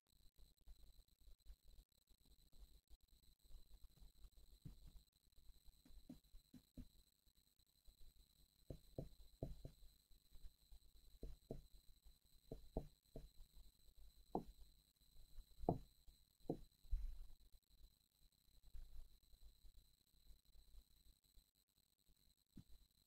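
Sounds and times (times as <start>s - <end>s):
stylus tapping on screen: 12.5s - 13.3s.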